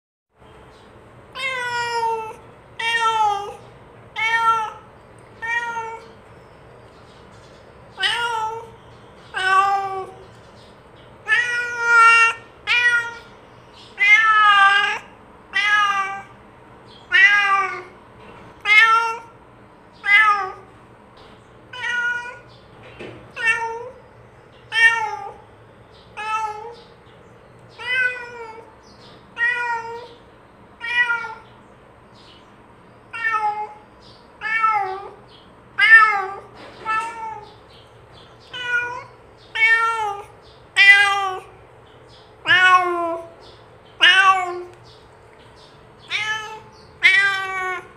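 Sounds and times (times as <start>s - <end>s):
cat meowing: 1.3s - 6.2s, 8.0s - 10.2s, 11.2s - 13.4s, 14.0s - 16.4s, 17.0s - 18.0s, 18.6s - 19.4s, 20.0s - 20.7s, 21.7s - 22.5s, 23.3s - 24.0s, 24.7s - 25.4s, 26.2s - 26.9s, 27.8s - 28.7s, 29.3s - 30.2s, 30.8s - 31.5s, 33.1s - 33.8s, 34.4s - 35.2s, 35.8s - 37.6s, 38.4s - 41.6s, 42.4s - 43.4s, 44.0s - 44.8s, 46.0s - 47.9s.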